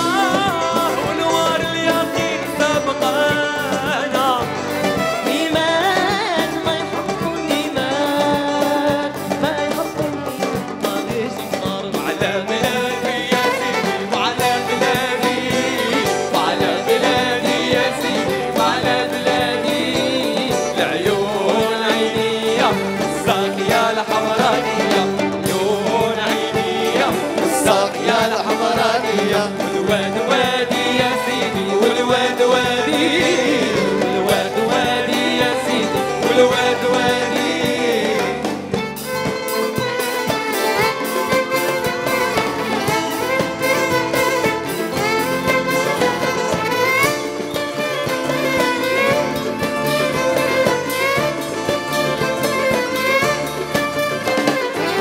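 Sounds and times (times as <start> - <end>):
man singing: 0.0 - 38.8
percussion beat: 0.0 - 55.0
violins playing melody: 0.0 - 55.0.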